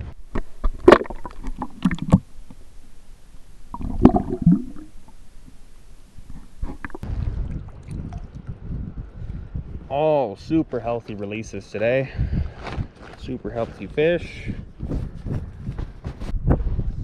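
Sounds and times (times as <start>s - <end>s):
water splashing: 0.5s - 2.6s, 3.7s - 5.6s, 6.3s - 8.6s.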